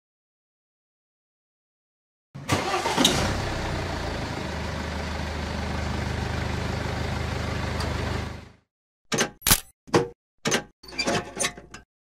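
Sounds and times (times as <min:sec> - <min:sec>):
vehicle engine running: 0:03.3 - 0:08.6.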